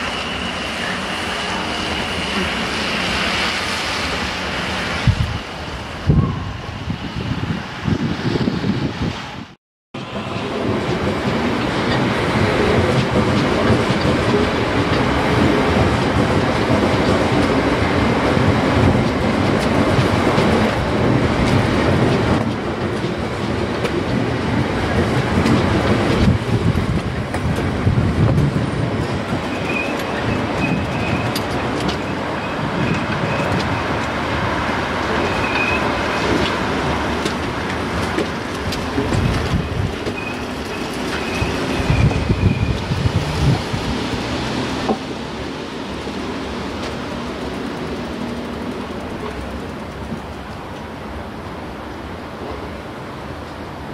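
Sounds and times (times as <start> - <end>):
train wheels clattering over rails: 10.0 - 51.3
high wheel squeal: 29.4 - 34.0, 35.2 - 36.3, 39.5 - 43.2.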